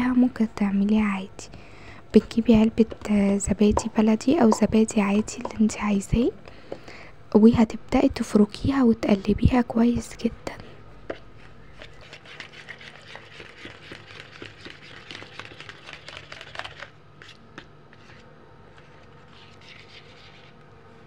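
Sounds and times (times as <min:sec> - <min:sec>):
spoon stirring yogurt in tub: 0:02.2 - 0:06.2, 0:11.1 - 0:21.0.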